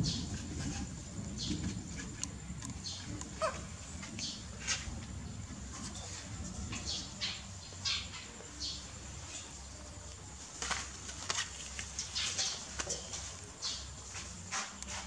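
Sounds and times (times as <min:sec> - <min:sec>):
rustles and scuffs on metal frame: 0:03.8 - 0:07.0, 0:10.4 - 0:15.0.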